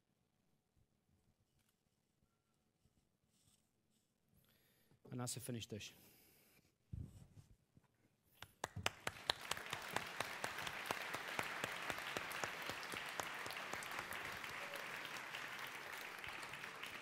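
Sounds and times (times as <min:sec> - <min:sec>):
audience applauding: 0:08.6 - 0:17.0.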